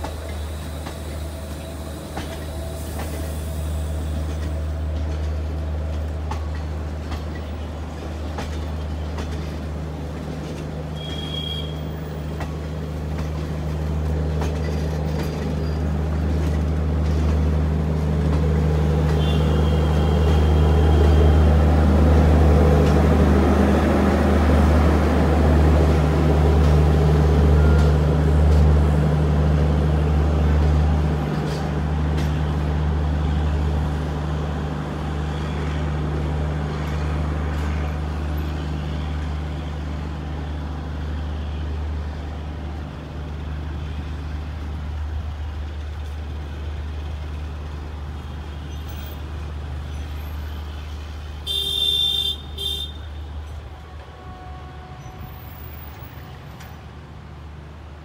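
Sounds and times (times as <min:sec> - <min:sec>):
train rumbling past: 0:00.0 - 0:58.0
train horn toot: 0:11.0 - 0:11.9, 0:19.1 - 0:21.6, 0:51.4 - 0:56.6.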